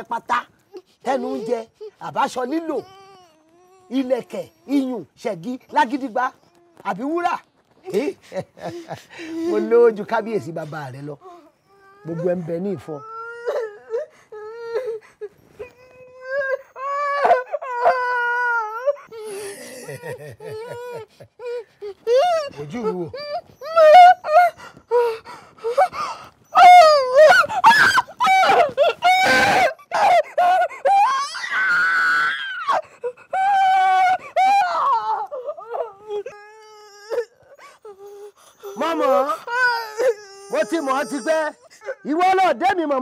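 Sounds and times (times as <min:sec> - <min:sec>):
person wailing and crying: 0:16.2 - 0:42.6.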